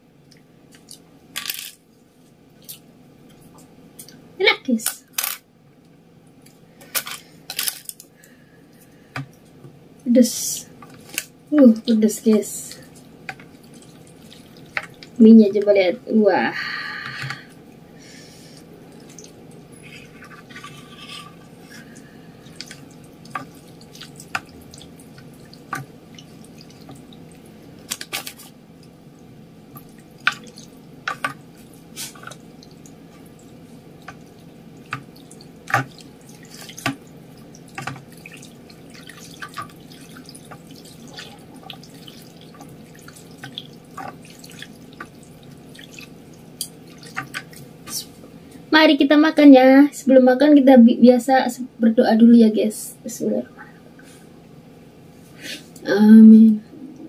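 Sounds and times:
steady low hum: 0.0s - 57.0s
broth dripping: 10.7s - 15.8s, 16.5s - 20.6s, 21.4s - 48.7s.

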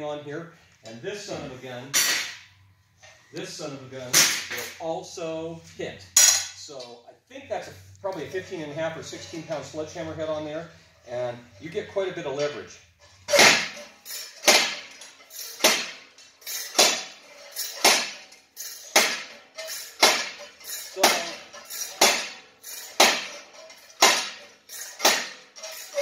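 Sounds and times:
sledgehammer clanging on steel: 1.9s - 2.5s, 4.0s - 4.9s, 6.2s - 7.0s, 11.0s - 26.0s.

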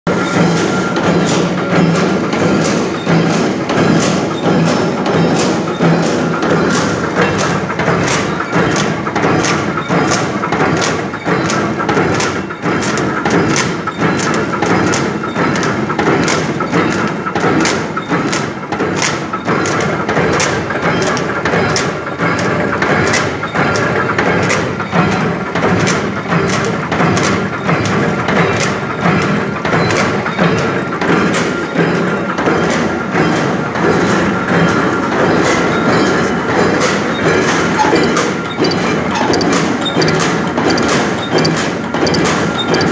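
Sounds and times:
machine hum: 36.5s - 42.9s
machine press striking: 36.5s - 42.9s.

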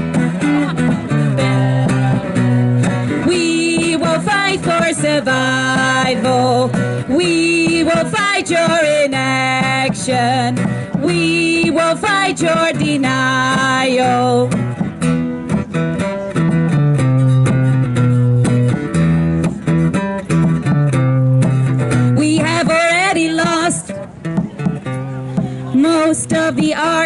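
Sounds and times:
acoustic guitar: 0.0s - 27.0s
woman singing: 0.6s - 2.2s, 3.2s - 14.5s, 22.1s - 23.9s, 25.7s - 27.0s.

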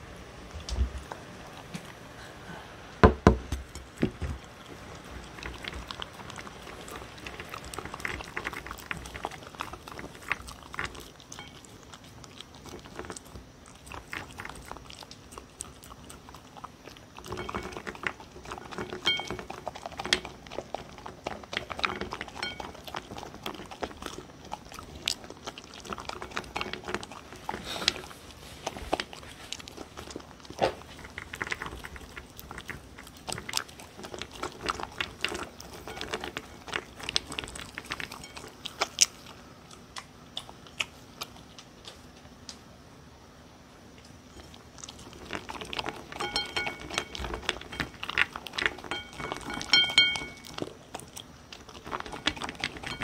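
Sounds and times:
dog crunching and chewing food: 0.4s - 2.1s, 3.1s - 42.6s, 43.9s - 53.0s.

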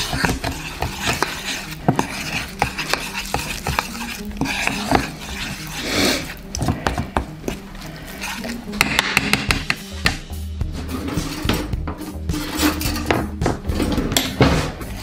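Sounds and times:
spoon scraping in a bowl: 0.0s - 9.6s, 10.8s - 13.1s.

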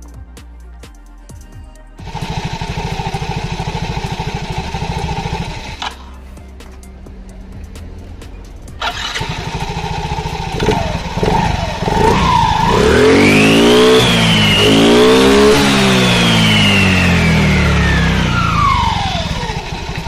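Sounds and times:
high whine of belt and pulleys: 2.0s - 6.2s, 8.8s - 20.0s
scooter engine revving: 2.0s - 20.0s.

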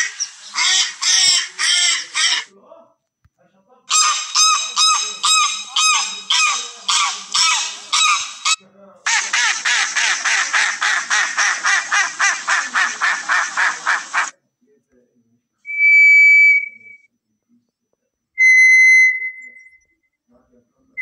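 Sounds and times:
duck quacking: 0.0s - 2.5s, 3.9s - 14.3s
goose honking: 0.0s - 2.5s, 3.9s - 14.3s.

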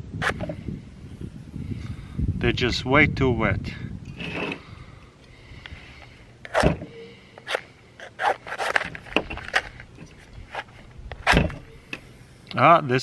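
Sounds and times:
matches scraping on striker strip: 7.4s - 12.1s.

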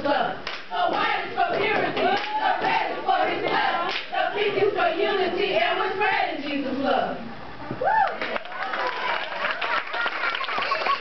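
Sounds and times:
women chanting in unison: 0.0s - 7.3s.

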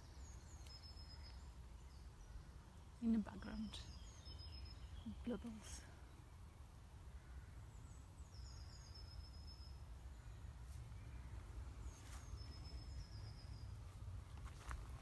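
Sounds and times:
songbird trilling: 3.0s - 5.8s
low outdoor rumble: 9.7s - 15.0s.

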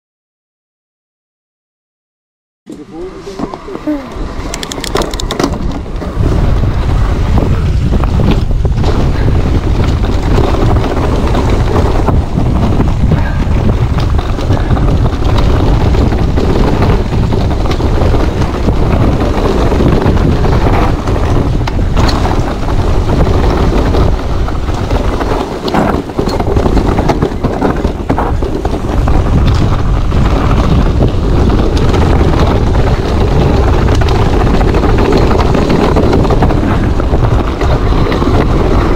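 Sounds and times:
wind buffeting microphone: 2.8s - 38.9s
clicks and knocks: 4.5s - 5.8s.

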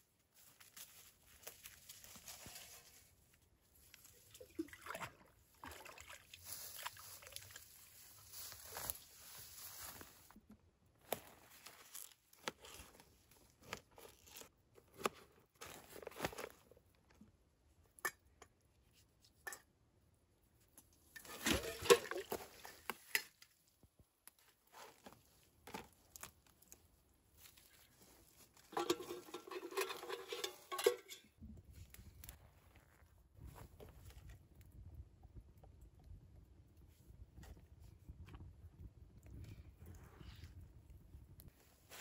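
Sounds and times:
utensils clattering in metal bowl: 21.2s - 22.5s, 28.7s - 31.3s.

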